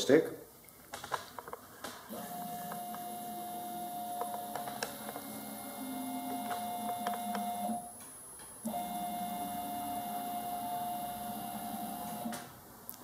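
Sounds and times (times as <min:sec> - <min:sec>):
stepper motors whining: 0:02.1 - 0:07.8.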